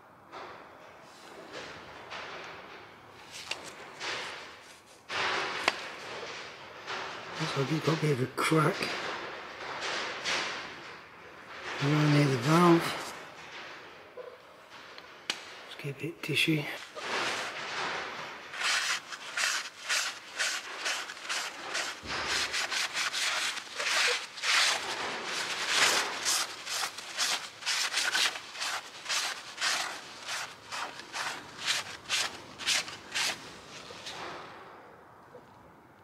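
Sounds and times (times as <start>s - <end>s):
rag wiping metal: 16.8s - 34.0s.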